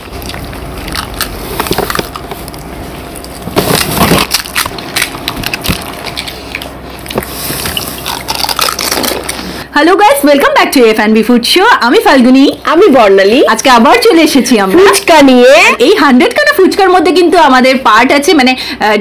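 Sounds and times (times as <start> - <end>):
crisp shells crunching: 0.0 - 9.6.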